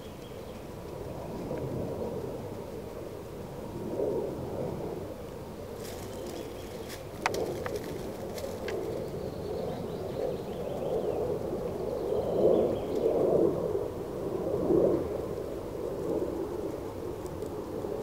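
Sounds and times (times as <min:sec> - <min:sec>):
bird cooing: 0:05.8 - 0:11.1.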